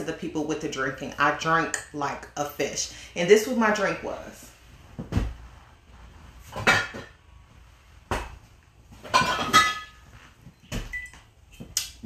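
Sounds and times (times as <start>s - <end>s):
glass bottles knocking and clinking: 9.1s - 10.0s.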